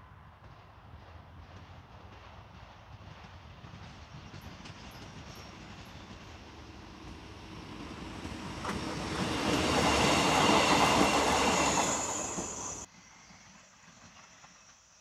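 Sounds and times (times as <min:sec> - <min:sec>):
train rumbling on rails: 0:00.0 - 0:15.0
wheel squeal: 0:08.6 - 0:12.9.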